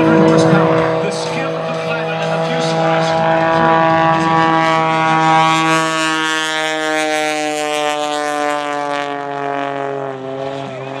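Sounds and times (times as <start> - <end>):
propeller plane engine droning: 0.0 - 11.0.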